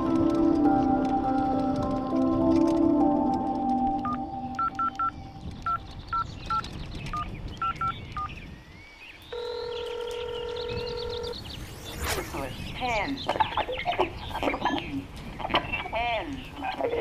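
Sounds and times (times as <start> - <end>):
steady dial tone: 0.0 - 5.8, 9.4 - 11.3
telephone keypad touch-tones: 4.0 - 5.8, 7.2 - 8.3.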